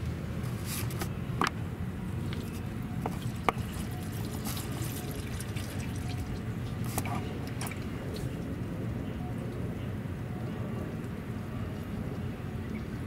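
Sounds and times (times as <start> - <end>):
steady low hum: 0.0 - 13.0
oil dripping: 2.0 - 8.8.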